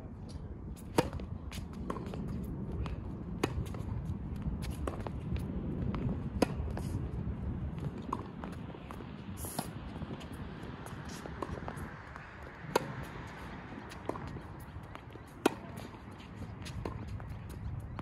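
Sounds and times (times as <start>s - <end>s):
tennis ball struck by rackets: 0.9s - 1.2s, 12.5s - 14.7s, 15.3s - 16.0s.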